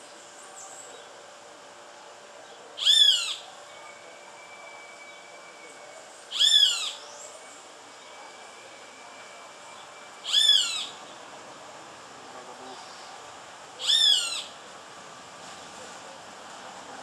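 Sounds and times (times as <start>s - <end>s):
hawk screaming calls: 2.8s - 3.5s, 6.3s - 7.0s, 10.2s - 11.0s, 13.8s - 14.6s.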